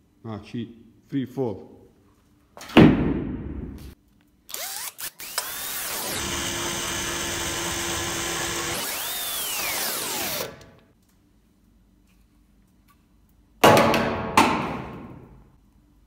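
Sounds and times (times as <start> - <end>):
drill bit on glass: 4.5 - 10.7
cordless drill whining: 4.5 - 10.8.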